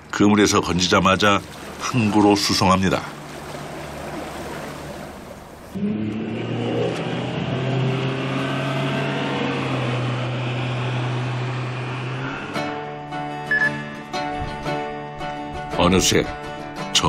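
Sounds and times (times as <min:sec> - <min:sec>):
water rushing against hull: 0:00.0 - 0:12.8
outboard motor running: 0:00.8 - 0:13.0.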